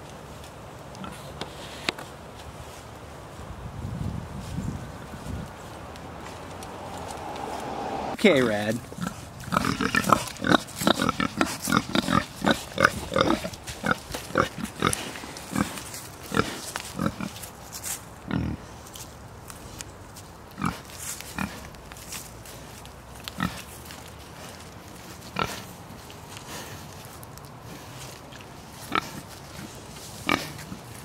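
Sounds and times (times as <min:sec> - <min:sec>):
pigs grunting: 0:08.8 - 0:17.4, 0:28.8 - 0:30.9.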